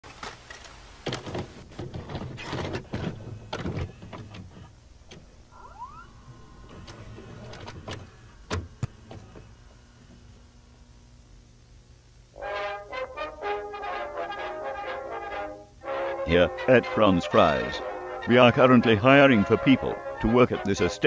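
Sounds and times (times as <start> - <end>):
tape mechanism clunks and rattles: 0.0 - 9.6
short rising chirp: 5.5 - 7.5.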